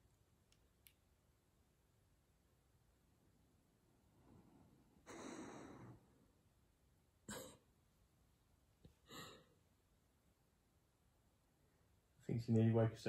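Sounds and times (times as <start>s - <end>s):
dog sighing in sleep: 5.0s - 6.0s.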